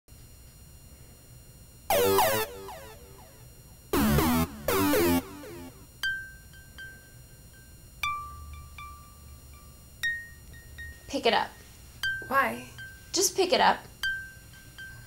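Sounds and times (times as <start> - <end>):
loud synthesizer chords: 1.9 - 3.4, 4.0 - 5.8.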